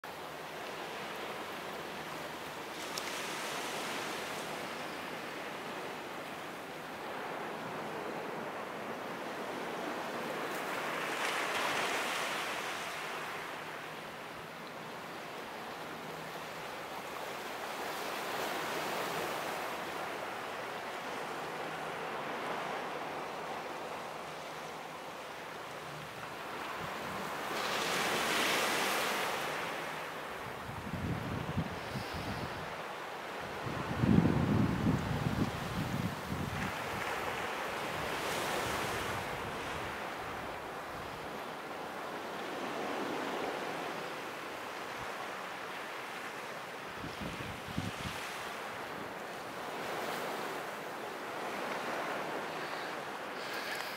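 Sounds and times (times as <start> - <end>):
small waves breaking on shore: 0.1 - 53.9
small sea waves washing in: 35.5 - 53.9.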